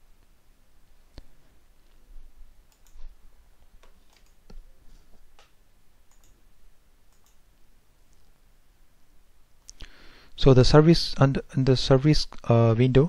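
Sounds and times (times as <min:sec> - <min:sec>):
computer mouse clicks: 0:02.7 - 0:03.1, 0:03.8 - 0:04.6, 0:06.1 - 0:06.4, 0:07.1 - 0:07.4.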